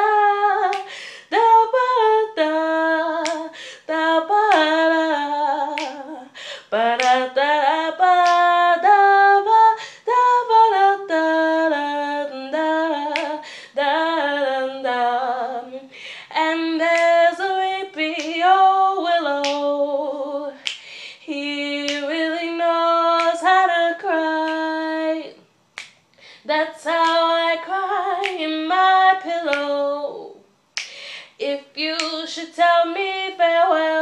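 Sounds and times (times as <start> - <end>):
finger snaps: 0.7 - 1.0, 3.2 - 3.6, 5.7 - 6.1, 7.0 - 7.3, 8.2 - 8.5, 13.1 - 13.4, 16.9 - 17.2, 19.4 - 19.8, 20.6 - 22.1, 23.2 - 23.5, 24.4 - 26.3, 27.0 - 27.3, 28.2 - 28.6, 29.4 - 29.8, 30.7 - 31.2, 31.9 - 32.3.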